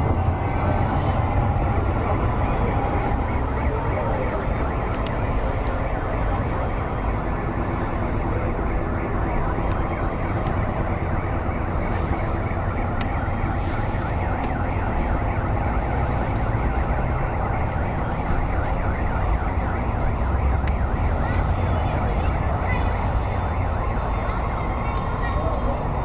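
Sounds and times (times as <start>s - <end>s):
low rumble: 0.0s - 7.6s
crowd voices: 0.0s - 26.0s.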